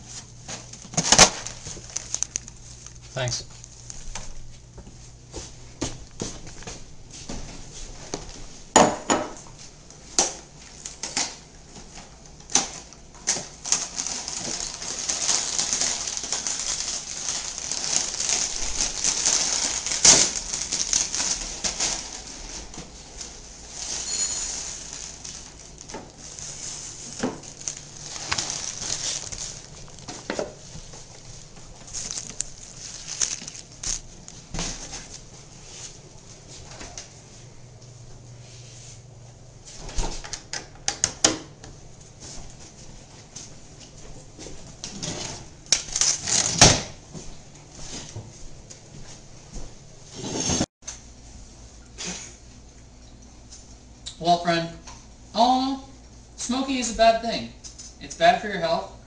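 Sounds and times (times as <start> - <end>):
plastic bag rustling: 0.0 - 6.9, 12.8 - 36.6, 42.2 - 49.6
dishes knocking and clinking: 8.8 - 9.4
cereal rattling into a bowl: 31.9 - 34.1.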